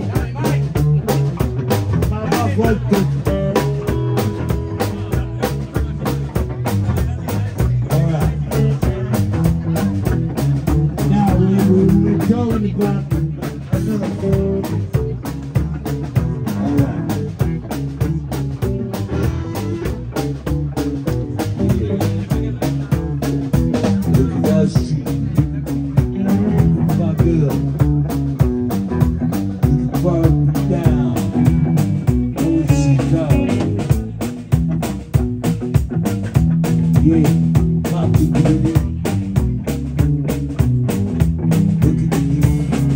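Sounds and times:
bass: 0:00.0 - 0:42.9
drum beat: 0:00.0 - 0:42.9
electric guitar: 0:00.0 - 0:42.9
man singing into a microphone: 0:11.0 - 0:14.9, 0:24.0 - 0:25.2, 0:29.6 - 0:31.8, 0:32.4 - 0:34.0.

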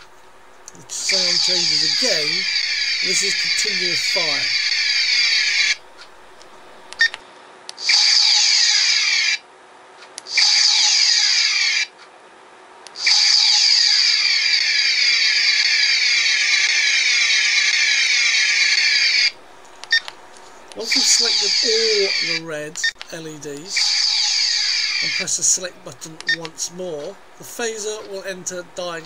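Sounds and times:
phaser firing buzzing whine: 0:00.0 - 0:07.2, 0:23.4 - 0:29.0.

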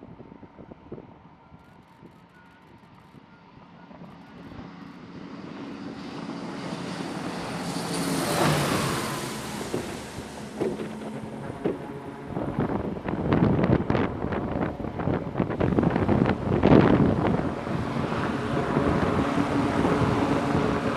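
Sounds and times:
turboprop engines roaring: 0:00.0 - 0:20.9
sharp knocks: 0:09.7 - 0:11.9.

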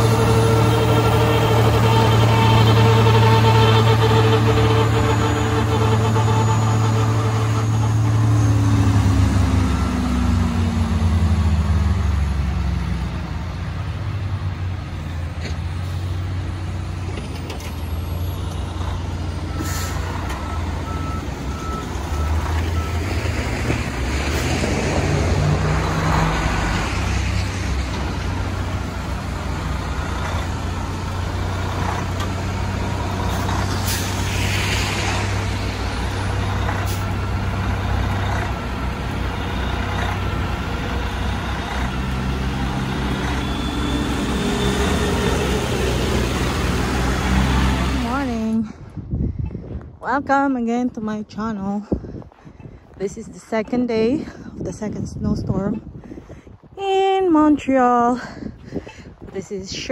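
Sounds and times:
wheel loader diesel engine: 0:00.0 - 0:54.6
trucks and bus running: 0:00.0 - 0:59.9
reversing beeps: 0:05.6 - 0:10.4, 0:19.5 - 0:23.2, 0:41.2 - 0:45.4.

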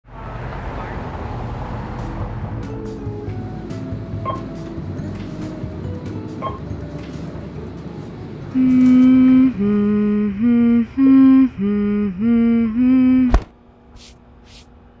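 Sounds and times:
person humming a slow tune: 0:08.5 - 0:13.5.

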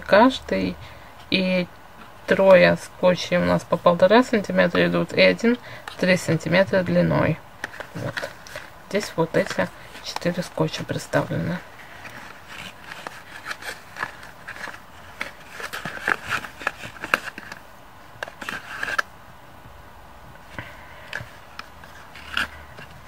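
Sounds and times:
cardboard scraping and rubbing: 0:11.8 - 0:17.6, 0:18.3 - 0:19.0, 0:21.2 - 0:23.0.

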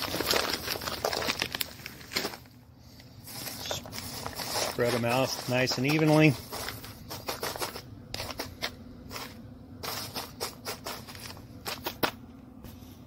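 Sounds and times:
light scraping: 0:03.2 - 0:12.0.

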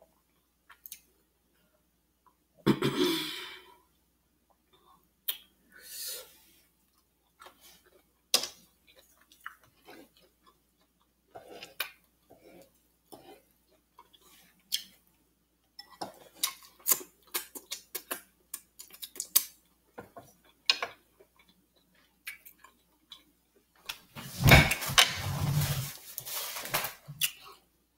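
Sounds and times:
chewing and lip smacking: 0:06.9 - 0:15.1, 0:16.2 - 0:19.6
paper napkin rustling: 0:24.2 - 0:27.1.

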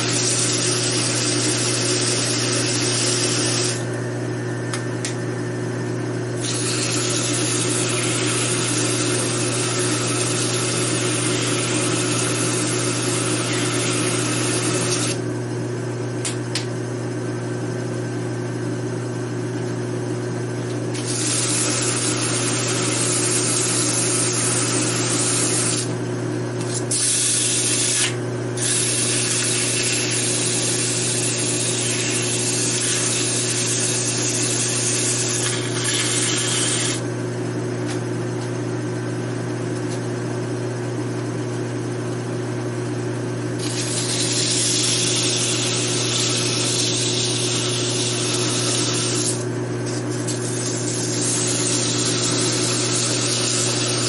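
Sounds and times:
sandpaper hissing on metal pulley: 0:00.0 - 0:03.8, 0:06.4 - 0:15.2, 0:21.0 - 0:25.9, 0:26.7 - 0:37.0, 0:43.6 - 0:54.0
lathe motor humming: 0:00.0 - 0:04.0, 0:06.0 - 0:15.2, 0:20.9 - 0:26.0, 0:27.3 - 0:37.0, 0:43.6 - 0:54.0.

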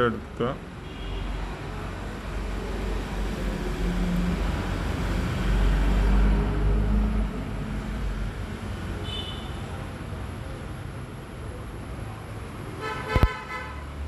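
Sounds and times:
road traffic rumble and hiss: 0:00.0 - 0:14.0
vehicle passing: 0:01.4 - 0:09.0.

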